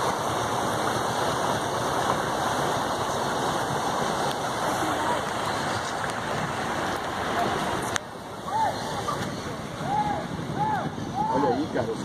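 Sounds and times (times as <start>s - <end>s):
rain and rushing water: 0.0s - 12.0s.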